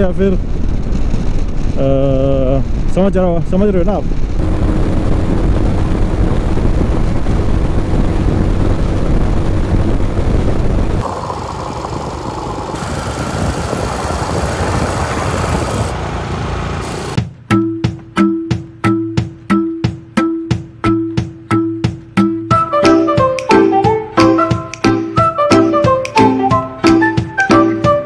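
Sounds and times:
motorcycle engine rumble: 0.0 - 17.4
wind and road noise: 0.0 - 17.4.

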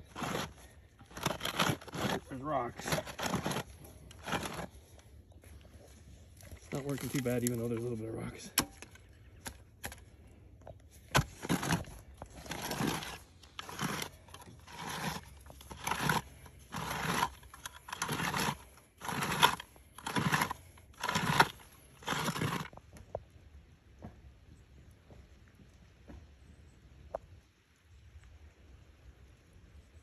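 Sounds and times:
post-hole digger crunching into gravel: 0.0 - 23.2.

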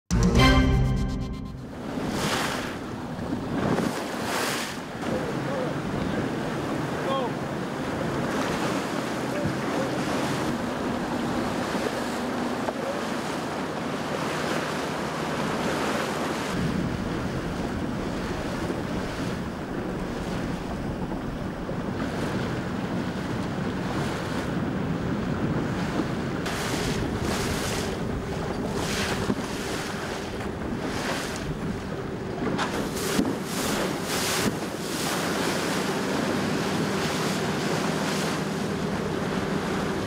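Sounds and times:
sea waves washing: 0.1 - 40.0
wind buffeting microphone: 1.8 - 14.2, 15.4 - 40.0
deep rumble: 16.6 - 22.6.

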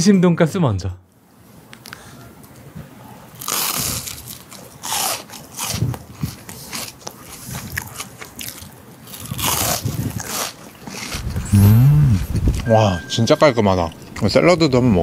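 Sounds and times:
crunching bites of fried cutlet: 3.4 - 11.2.

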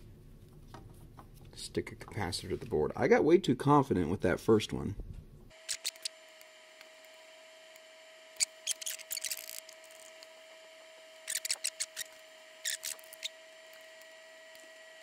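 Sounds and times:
tweezers and soldering iron clicking: 5.7 - 6.1.

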